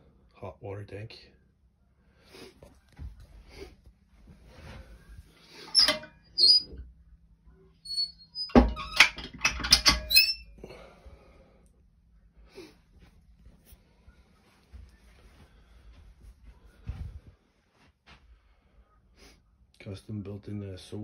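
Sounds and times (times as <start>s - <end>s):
metal stove door squeaking: 5.5s - 6.8s, 7.8s - 10.6s.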